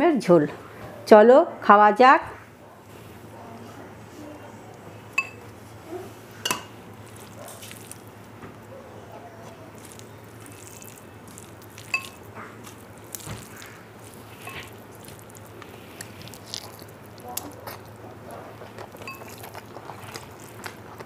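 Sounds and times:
fingers squishing rice: 7.0 - 8.4, 9.2 - 21.0.

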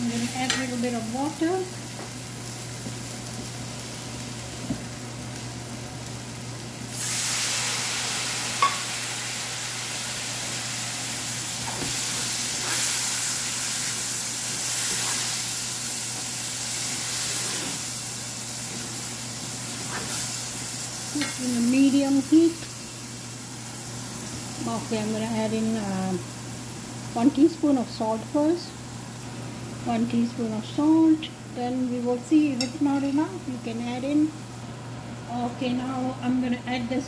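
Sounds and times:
food frying in a pan: 0.0 - 37.0
loud steamy hiss: 6.8 - 24.8.

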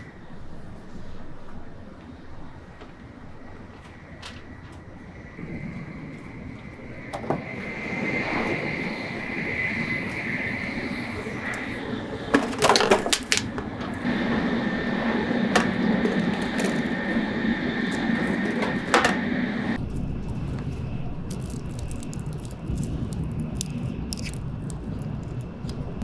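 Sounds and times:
steady hum: 0.0 - 26.0
train carriage rumble: 0.0 - 26.0.

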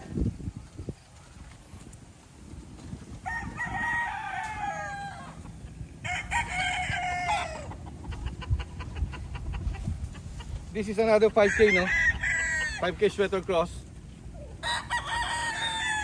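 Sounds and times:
young roosters crowing: 3.0 - 9.8, 10.4 - 13.7, 14.3 - 16.0.

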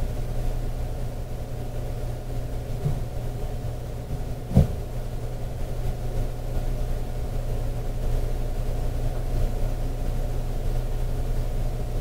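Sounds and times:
single thump: 4.5 - 4.8.

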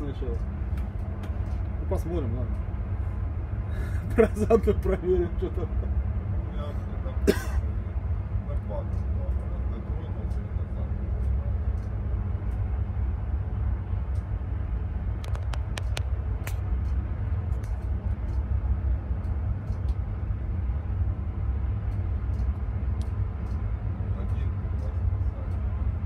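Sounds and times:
sharp clicks: 15.2 - 17.0, 19.2 - 20.0.

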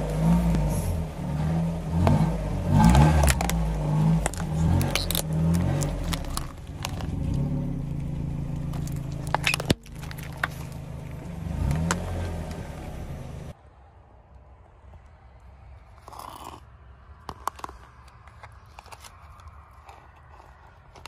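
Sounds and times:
car engine revving: 0.0 - 13.6
objects crushed under tyres: 1.9 - 12.6.

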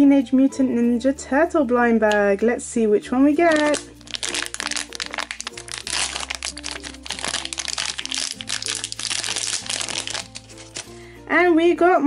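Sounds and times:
light background music: 0.0 - 12.0
foil bag crinkling: 3.5 - 10.9.

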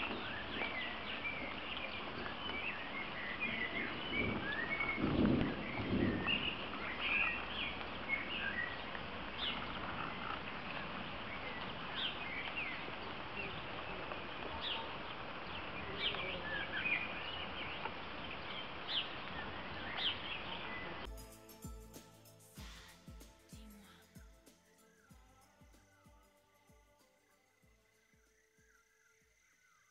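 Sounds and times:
light rain on stream: 0.0 - 26.2
birds chirping: 0.0 - 29.9
music: 21.1 - 28.9.

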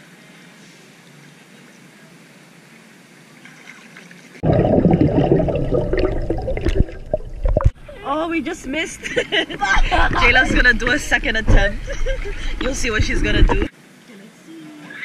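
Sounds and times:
faint steady hiss: 0.0 - 4.4, 5.1 - 15.0
muffled underwater rushing: 4.4 - 8.0, 9.7 - 13.7.

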